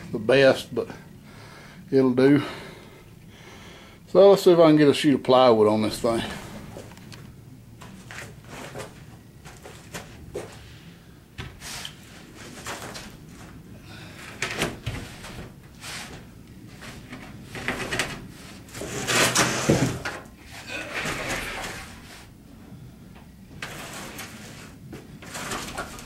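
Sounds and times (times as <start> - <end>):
plywood scraping: 14.4 - 22.3, 23.6 - 26.0.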